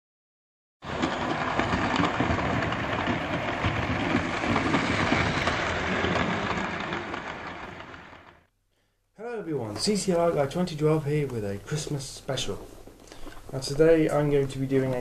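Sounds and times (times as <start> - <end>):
model trains whirring on track: 0.9 - 8.5.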